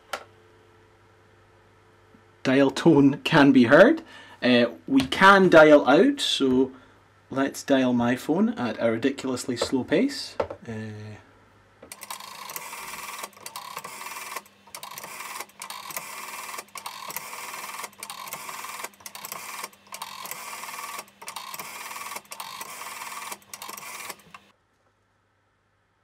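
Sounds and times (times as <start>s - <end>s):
rotary phone dial whirring: 11.9s - 24.5s.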